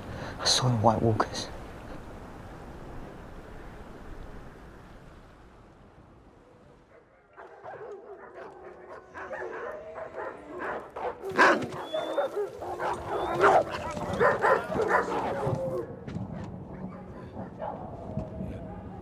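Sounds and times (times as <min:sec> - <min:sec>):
dog barking and yelping: 0:06.9 - 0:15.9.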